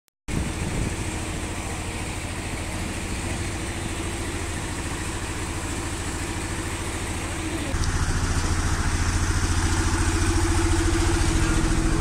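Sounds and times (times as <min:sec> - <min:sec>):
engine idling: 0:00.3 - 0:12.0.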